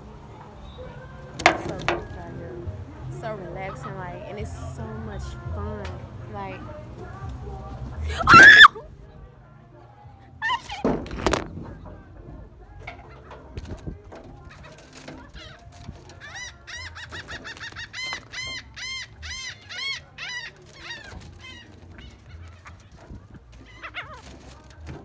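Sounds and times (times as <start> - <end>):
gull calling: 8.1 - 8.8, 15.3 - 24.3.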